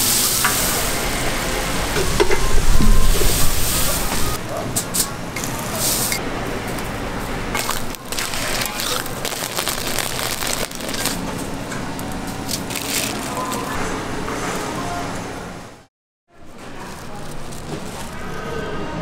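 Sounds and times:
crunching knocks and scrapes: 16.4s - 18.5s.

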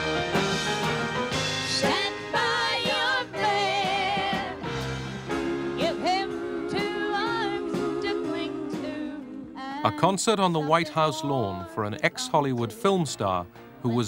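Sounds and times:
musical accompaniment: 0.0s - 14.0s
woman singing into microphone: 5.8s - 12.8s.

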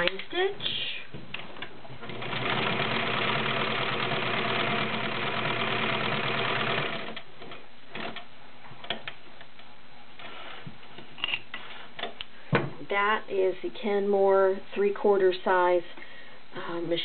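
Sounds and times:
sewing machine running: 2.0s - 7.2s.

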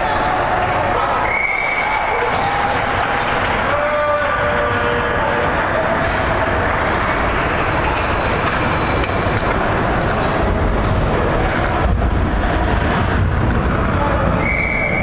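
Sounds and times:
ice rink crowd din: 0.0s - 15.0s
hockey stick and puck clicks: 2.1s - 3.7s, 5.9s - 12.0s.

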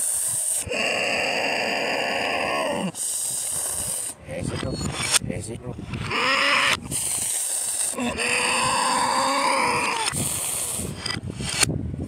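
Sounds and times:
hiss: 0.0s - 0.7s, 2.8s - 4.2s, 6.8s - 8.0s, 10.0s - 11.7s.

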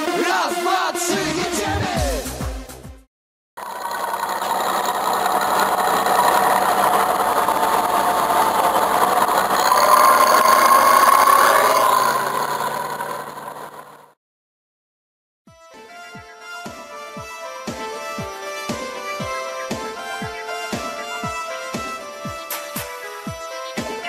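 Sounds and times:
combine harvester running: 3.6s - 14.1s.

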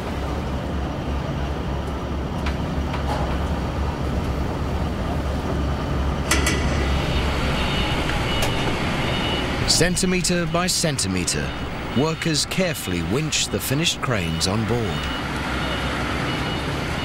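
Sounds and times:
industrial machinery rumbling: 0.0s - 17.0s
thin high whine: 6.2s - 13.3s
sharp metallic clicks: 6.3s - 7.0s.

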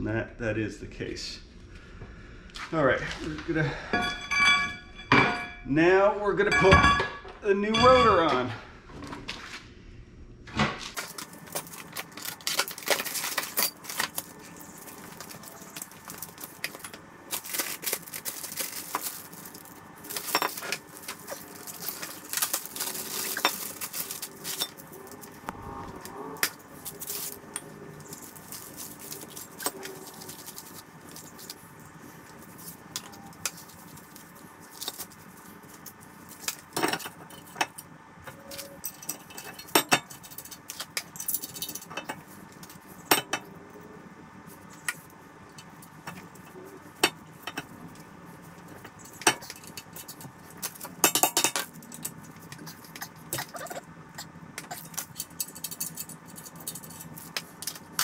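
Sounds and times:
metallic clinks and knocks: 3.9s - 5.7s
plastic bag rustling: 10.9s - 36.8s.

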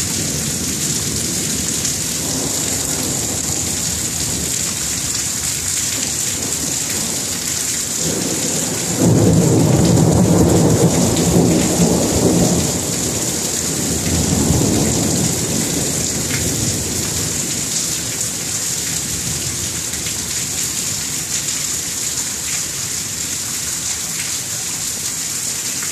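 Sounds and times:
thunder rumbling: 0.0s - 5.2s, 8.0s - 18.4s
steady rain: 0.0s - 25.9s.

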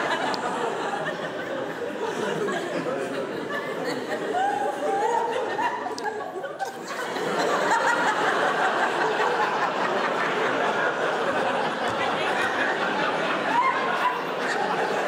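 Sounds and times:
audience laughing: 0.0s - 15.0s.

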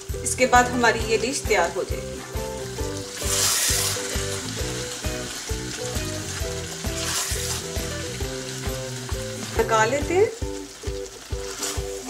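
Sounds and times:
background music with steady beat: 0.0s - 12.0s
food sizzling in a wok: 0.0s - 12.0s
wooden spoon stirring: 2.9s - 9.8s.

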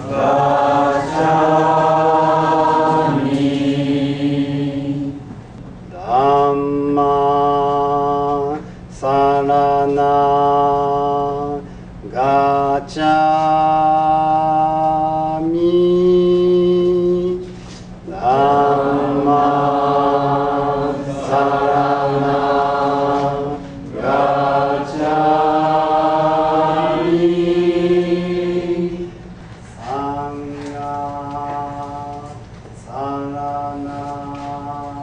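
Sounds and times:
slow singing in long notes: 0.0s - 5.3s, 18.1s - 32.3s.

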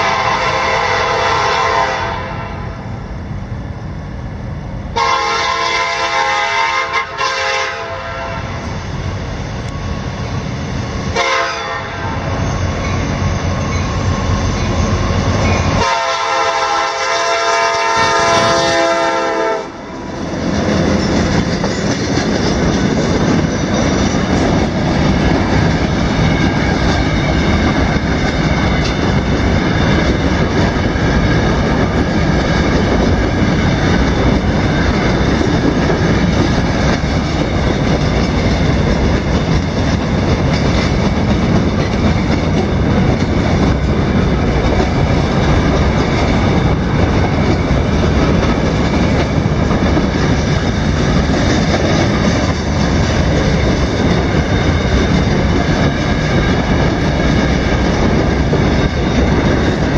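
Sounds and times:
locomotive air horn blasts: 0.0s - 2.8s, 5.0s - 8.6s, 11.1s - 12.2s, 15.8s - 19.8s
train rumbling past: 0.0s - 59.9s
wheels clattering on rail joints: 20.1s - 59.9s.

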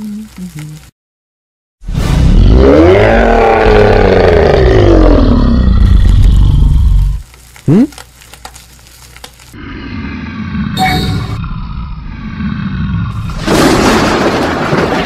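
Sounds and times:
animated creature roar: 2.2s - 7.2s, 9.5s - 13.6s.

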